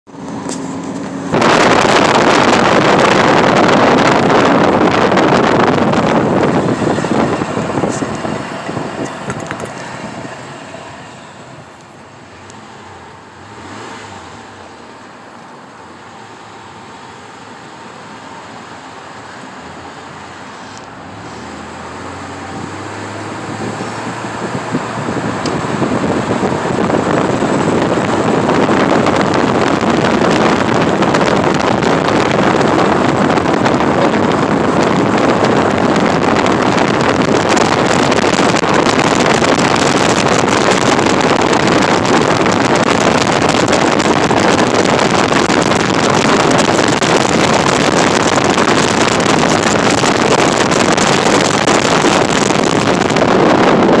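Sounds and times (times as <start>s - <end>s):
road noise: 0.0s - 54.0s
wind buffeting microphone: 0.1s - 14.7s, 20.9s - 54.0s.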